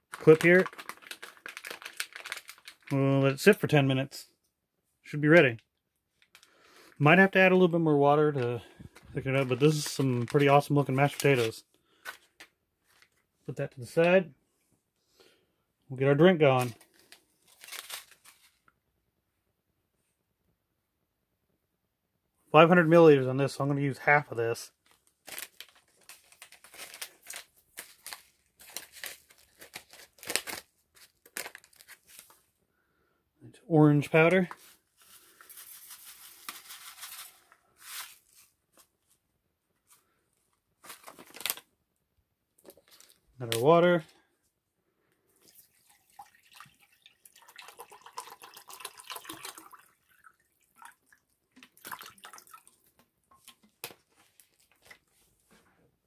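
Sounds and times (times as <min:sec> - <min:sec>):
foil pouch crinkling: 0:00.1 - 0:03.0, 0:08.6 - 0:13.2, 0:16.6 - 0:18.6, 0:24.8 - 0:32.4, 0:34.4 - 0:38.8, 0:40.8 - 0:41.7
water pouring into metal cup: 0:45.4 - 0:51.2, 0:51.8 - 0:52.8
water dripping: 0:45.4 - 0:53.6.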